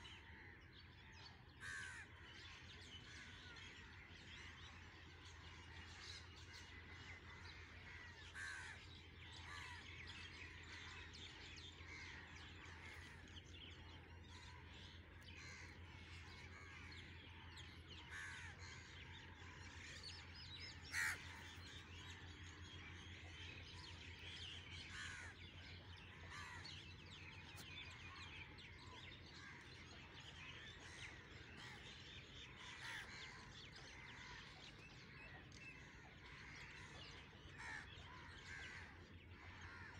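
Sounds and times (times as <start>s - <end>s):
birds calling: 0.0s - 39.9s
low steady hum: 0.0s - 39.9s.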